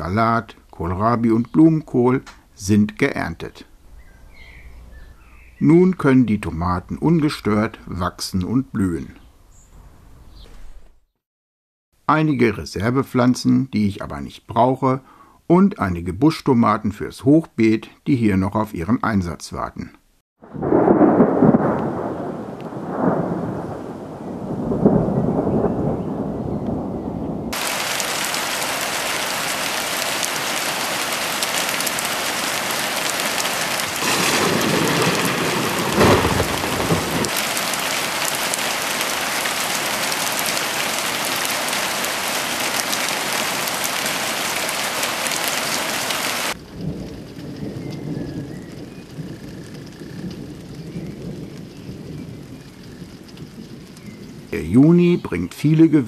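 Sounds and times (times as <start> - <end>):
outdoor background: 0.0 - 11.2, 12.0 - 56.0
heavy rain on hard tabletop: 20.4 - 55.1
thunder rumble: 20.4 - 56.0.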